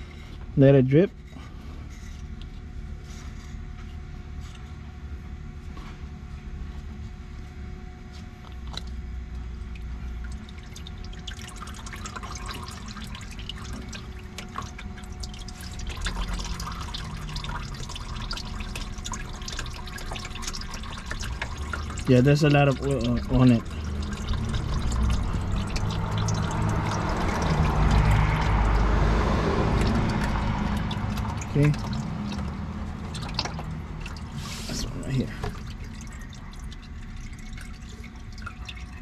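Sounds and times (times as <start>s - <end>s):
steady low hum: 0.0s - 39.0s
oil dripping into a pan: 8.5s - 39.0s.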